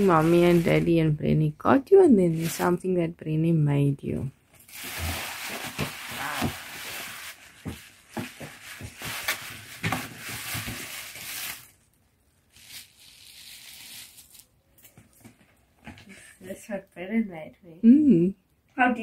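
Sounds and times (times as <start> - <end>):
tissue paper crinkling: 0.0 - 1.0, 2.3 - 2.8, 4.6 - 14.8.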